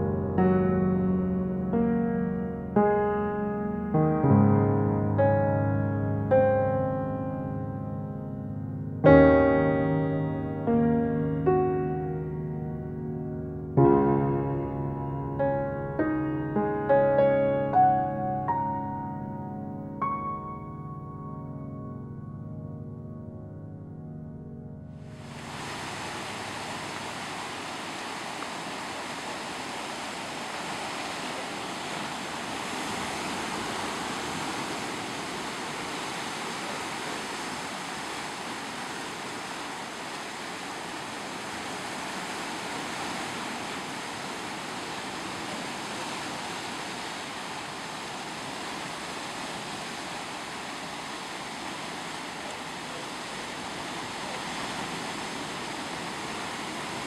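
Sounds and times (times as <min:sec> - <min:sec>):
surf rushing among rocks: 0:25.2 - 0:57.0.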